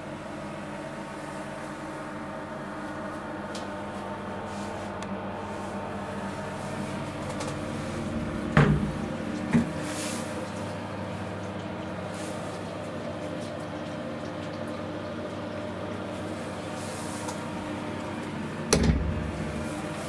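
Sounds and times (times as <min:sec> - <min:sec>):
steady hum: 0:00.7 - 0:11.3, 0:15.1 - 0:20.0.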